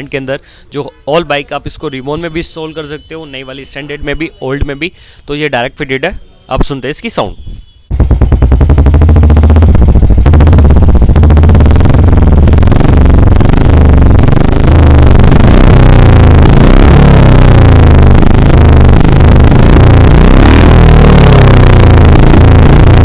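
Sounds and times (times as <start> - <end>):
motorcycle engine revving: 7.9 - 23.0.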